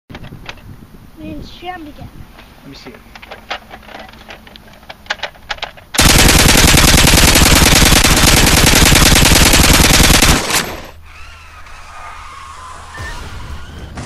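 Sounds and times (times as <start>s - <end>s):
machine-gun fire: 6.0s - 11.0s.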